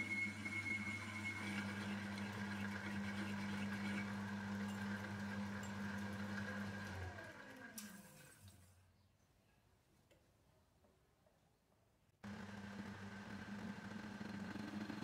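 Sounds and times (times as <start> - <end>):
metal lathe hum and whine: 0.0 - 7.5, 12.3 - 15.0.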